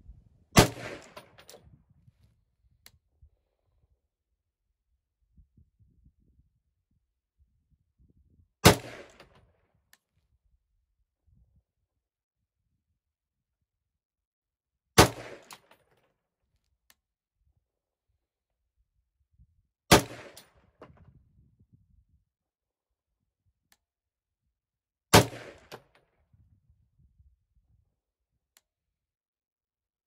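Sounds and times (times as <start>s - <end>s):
rifle shots with echo: 0.5s - 1.6s, 8.6s - 9.4s, 15.0s - 15.7s, 19.9s - 20.7s, 25.1s - 25.8s.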